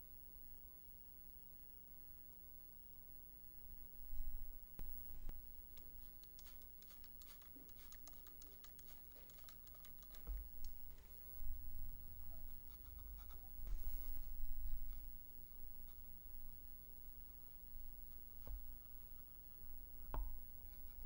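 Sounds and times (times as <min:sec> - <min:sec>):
paper towel rubbing on plastic: 0:05.9 - 0:11.1.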